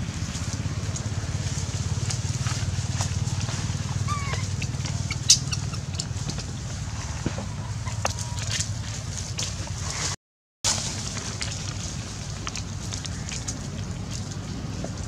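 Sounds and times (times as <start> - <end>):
small engine droning: 0.0 - 15.0.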